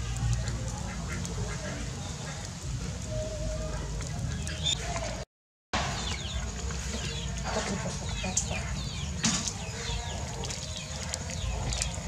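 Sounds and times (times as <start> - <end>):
birds chirping: 0.2 - 5.2, 5.8 - 12.0
oil popping: 5.8 - 12.0.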